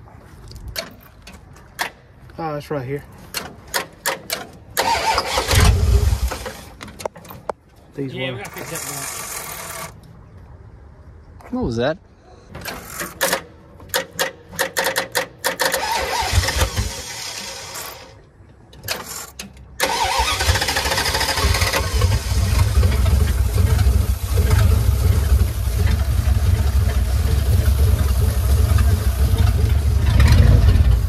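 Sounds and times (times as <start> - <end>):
engine cranking: 3.4 - 7.5, 12.6 - 18.2, 18.8 - 31.0
engine running: 19.8 - 31.0.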